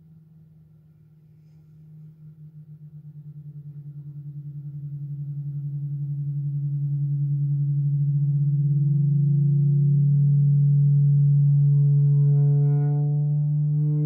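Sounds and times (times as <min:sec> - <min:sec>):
low pulsing feedback drone: 0:00.0 - 0:14.0
faint upward gliding tone: 0:09.7 - 0:14.0.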